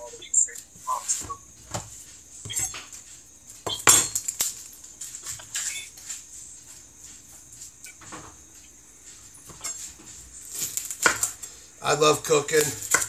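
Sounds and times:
dishes and utensils clinking: 3.6s - 4.6s.

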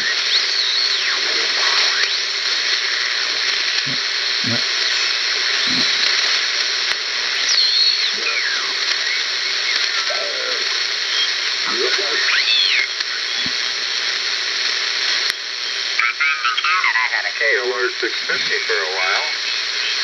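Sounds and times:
radio static hiss: 0.0s - 20.0s.

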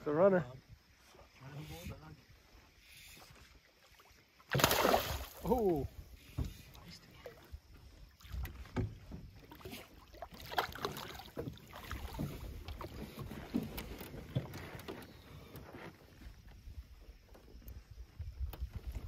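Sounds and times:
fish splashing in water: 4.0s - 5.8s, 9.5s - 12.9s.

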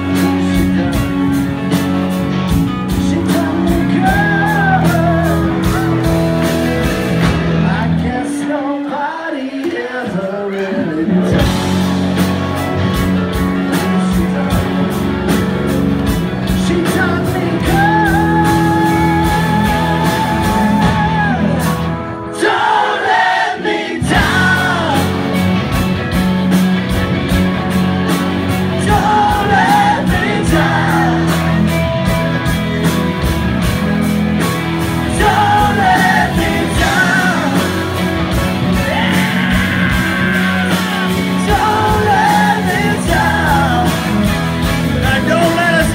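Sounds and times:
steady drum beat: 0.0s - 8.0s, 11.2s - 45.9s
electric guitars: 0.0s - 45.9s
voices singing together: 7.5s - 11.5s, 22.3s - 25.3s, 28.6s - 31.9s, 34.8s - 44.4s.

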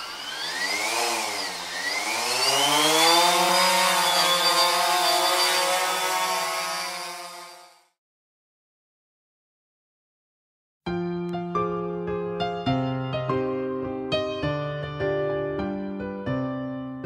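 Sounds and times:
drone motor buzzing: 0.0s - 7.9s.

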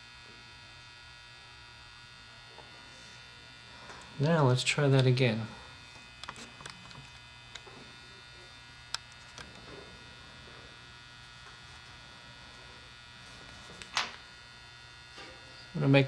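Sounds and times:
electrical hum with thin tones: 0.0s - 16.0s
clicks and taps of wire leads: 6.0s - 7.7s.

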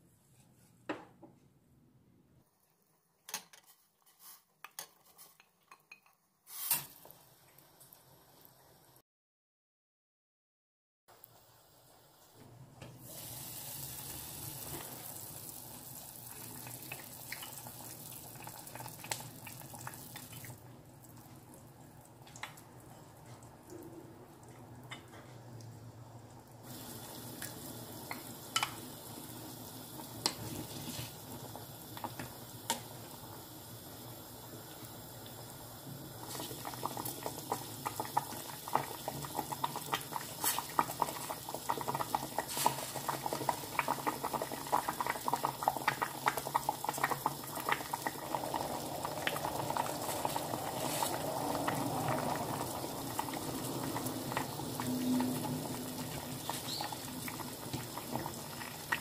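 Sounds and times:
stew bubbling and popping in pot: 14.0s - 59.0s.

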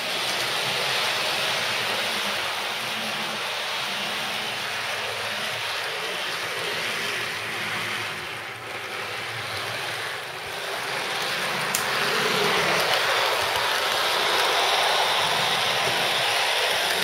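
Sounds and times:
model train motor whirring: 0.0s - 17.0s.

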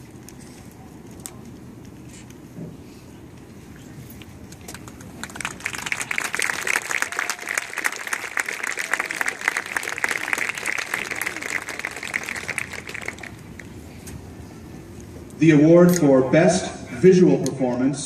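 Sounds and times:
low crowd murmur: 0.0s - 16.0s
crowd applauding: 4.7s - 13.8s.

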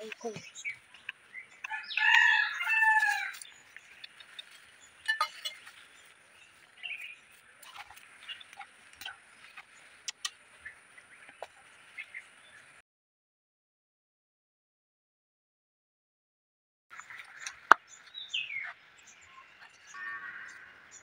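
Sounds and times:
rooster crowing: 1.7s - 3.5s.

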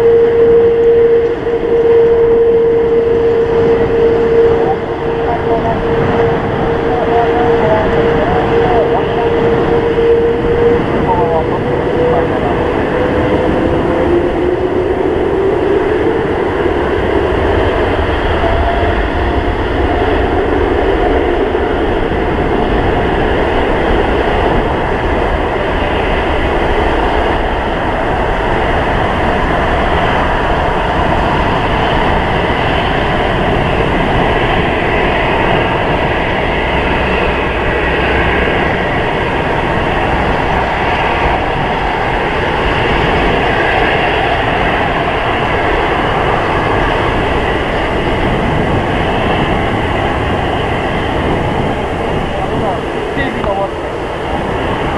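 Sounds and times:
jet engine roar: 0.0s - 54.9s.

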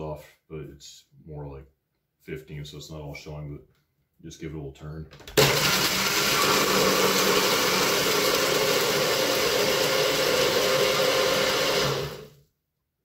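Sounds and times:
blender crushing ice: 5.4s - 12.4s.

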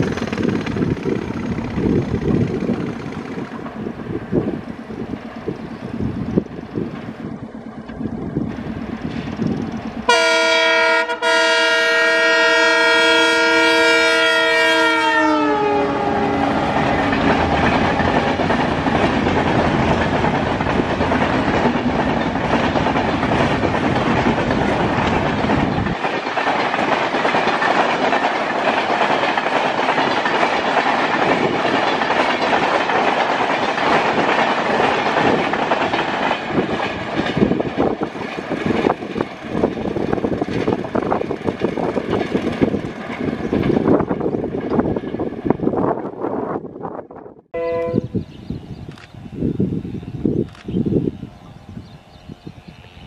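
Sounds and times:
train coaches rushing past: 0.0s - 46.7s
locomotive multi-tone horn: 10.1s - 17.3s, 47.5s - 48.2s.

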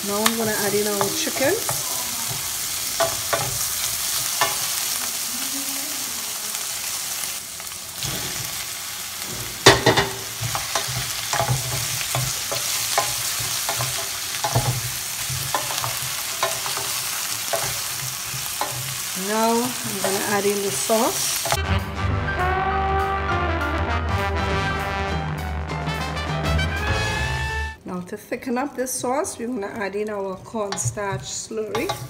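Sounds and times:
vegetables sizzling in oil: 0.0s - 21.6s, 28.7s - 32.0s.

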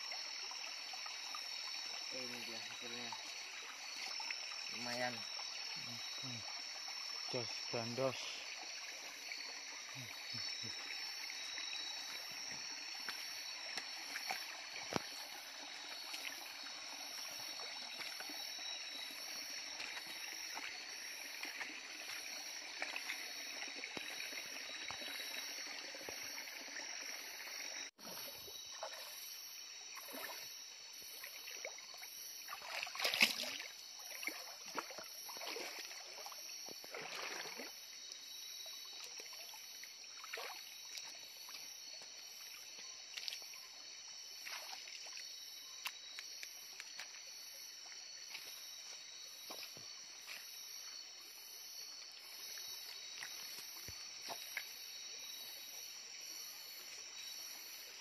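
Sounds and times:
stream water trickling: 0.0s - 58.0s
feet splashing in water: 32.5s - 36.2s, 36.8s - 37.8s, 44.3s - 48.6s.

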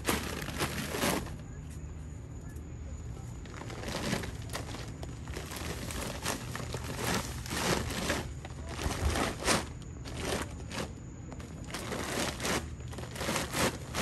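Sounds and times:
bags rustling and crinkling: 0.0s - 1.6s, 3.3s - 14.0s
steady low hum: 0.0s - 14.0s.

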